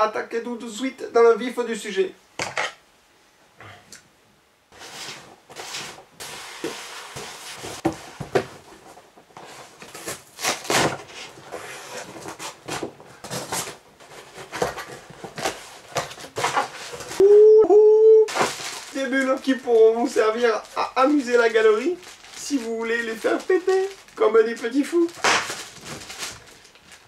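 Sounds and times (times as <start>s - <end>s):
cardboard flaps scraping and rustling: 4.8s - 17.2s, 18.3s - 27.0s
packing tape tearing: 9.8s - 13.8s, 18.3s - 24.2s, 24.9s - 27.0s.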